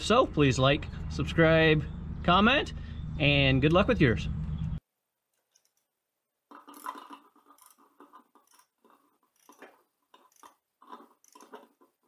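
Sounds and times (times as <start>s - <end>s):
ratchet wrench clicking: 6.7s - 7.8s, 9.3s - 10.6s, 11.2s - 11.6s.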